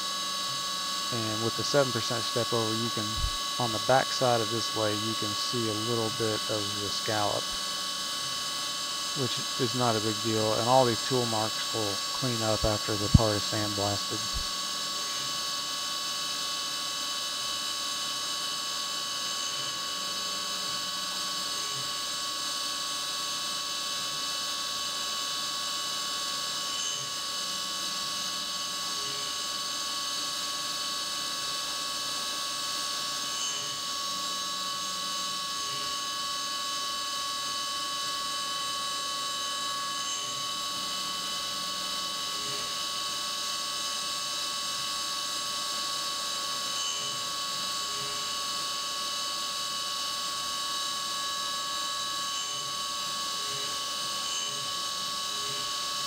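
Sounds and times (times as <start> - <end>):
milling spindle whine: 0.0 - 56.0.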